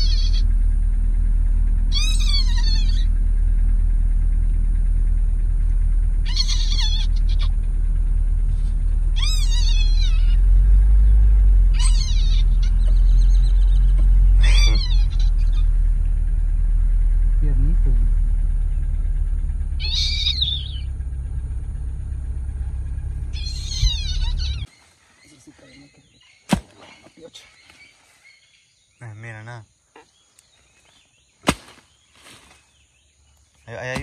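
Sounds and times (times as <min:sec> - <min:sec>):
high-pitched animal calls: 0:00.0 - 0:00.6, 0:01.8 - 0:03.2, 0:06.1 - 0:07.6, 0:09.0 - 0:10.8, 0:11.6 - 0:16.1, 0:19.6 - 0:20.9, 0:23.3 - 0:24.7
vehicle engine idling: 0:00.0 - 0:34.0.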